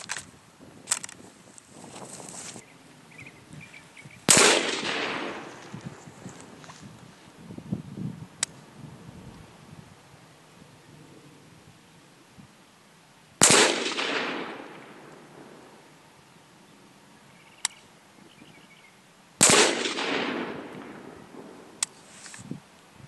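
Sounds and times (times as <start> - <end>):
rifle shots with echo: 4.2 - 5.8, 13.4 - 15.9, 19.4 - 21.8
short sharp clicks: 17.6 - 17.8.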